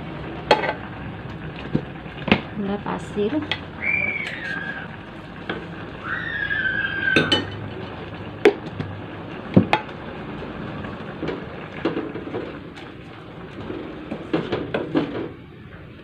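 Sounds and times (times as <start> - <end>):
spoon scraping in metal pot: 4.2 - 4.8.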